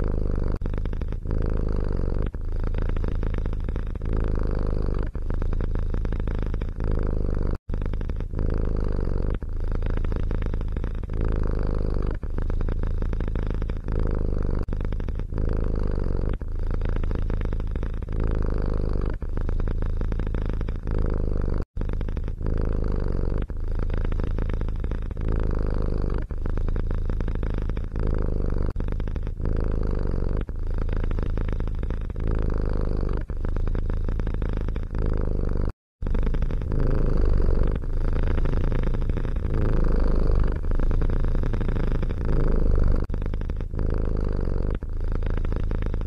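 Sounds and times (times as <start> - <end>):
cat purring: 0.0 - 46.0.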